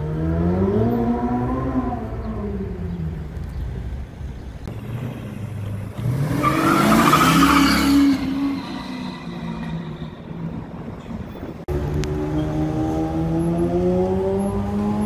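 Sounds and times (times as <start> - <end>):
car engine accelerating hard: 11.7 - 15.0.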